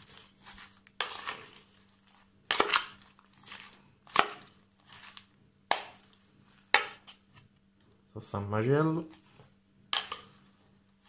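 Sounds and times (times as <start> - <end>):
salad leaves rustling: 0.0 - 5.3.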